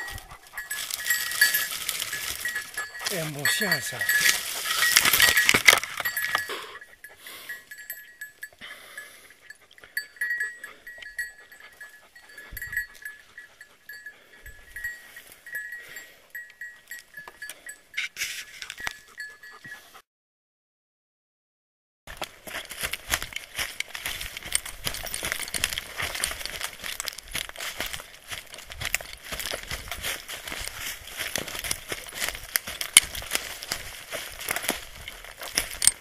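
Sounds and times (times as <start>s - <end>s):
dog collar bell jingling: 0.0s - 20.0s, 22.2s - 36.0s
crashing and rustling through brush: 0.7s - 6.5s.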